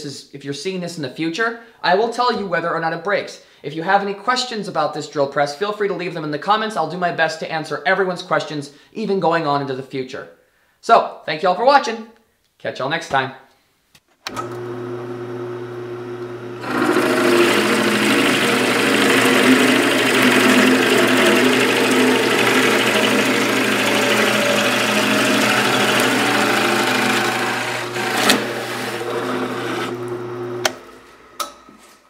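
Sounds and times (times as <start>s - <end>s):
drill bit boring into wood: 14.3s - 31.0s
drill press motor hum: 14.3s - 31.7s.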